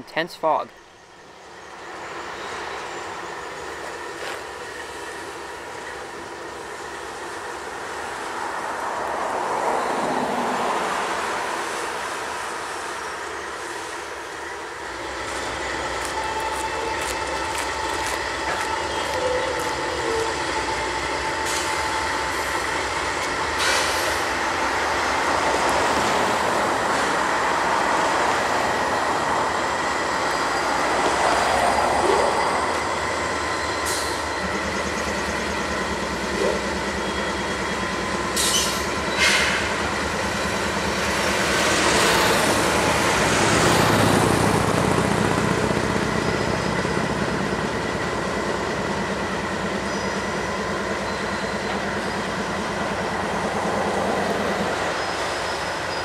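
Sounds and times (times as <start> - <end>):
locomotive engines rumbling: 10.5 - 56.0
wheel squeal: 54.7 - 56.0.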